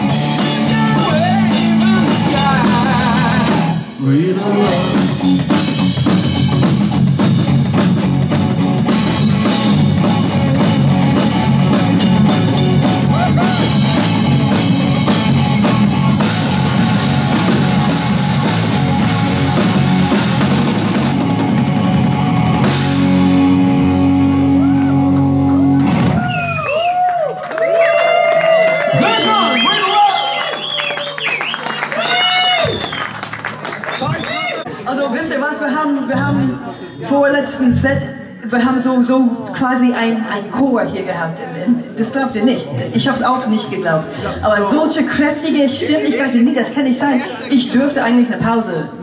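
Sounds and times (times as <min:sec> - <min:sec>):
drum kit: 0:00.0 - 0:26.8
bass guitar: 0:00.0 - 0:27.3, 0:36.1 - 0:36.8, 0:37.4 - 0:38.4
electric guitar: 0:00.0 - 0:27.3.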